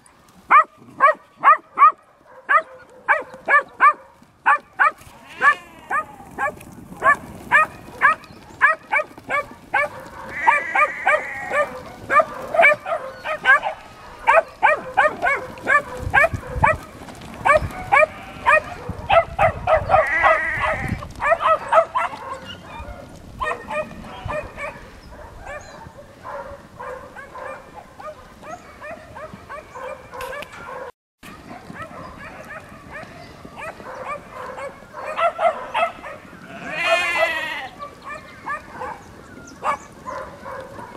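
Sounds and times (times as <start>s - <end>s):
puppies barking: 0.0s - 40.9s
sheep bleating: 5.0s - 6.3s, 10.2s - 11.8s, 18.0s - 18.7s, 20.0s - 21.0s, 36.4s - 37.8s.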